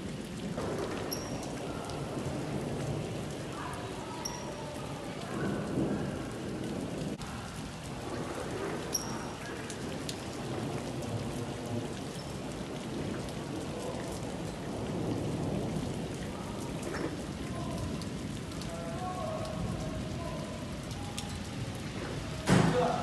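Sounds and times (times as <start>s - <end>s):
low rumble of thunder: 0.0s - 4.0s, 4.9s - 18.7s
heavy rain on hard ground: 0.0s - 23.0s.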